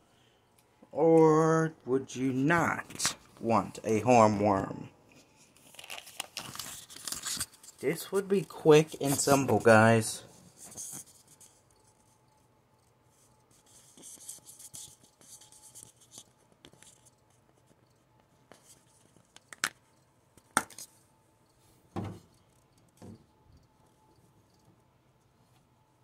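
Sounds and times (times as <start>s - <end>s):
dull thump: 21.9s - 22.3s.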